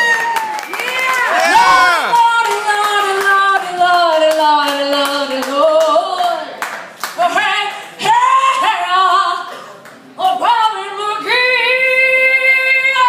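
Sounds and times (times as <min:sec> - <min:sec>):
woman singing unaccompanied: 0:00.8 - 0:06.5, 0:10.2 - 0:13.0.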